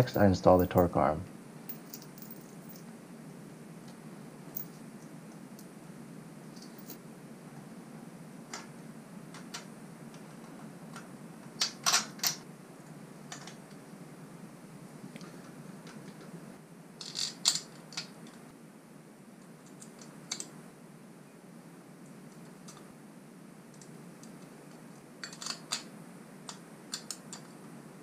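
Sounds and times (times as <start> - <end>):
steady low hum: 0.0 - 28.0
small metal parts clinking: 1.7 - 2.8, 4.5 - 4.8, 6.5 - 7.0, 11.6 - 12.4, 17.0 - 18.1, 25.2 - 25.9.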